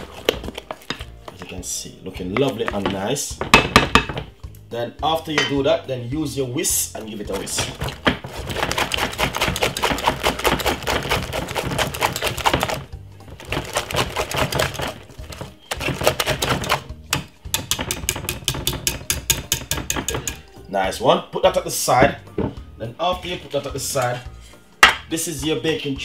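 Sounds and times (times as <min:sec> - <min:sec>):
whisk clicking against glass bowl: 0:15.7 - 0:20.4.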